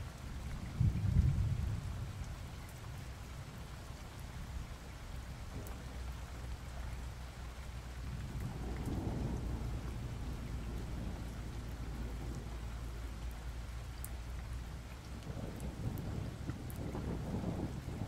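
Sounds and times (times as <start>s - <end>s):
steady rain falling: 0.0s - 18.0s
thunder rumbling: 8.0s - 13.4s, 15.2s - 18.0s.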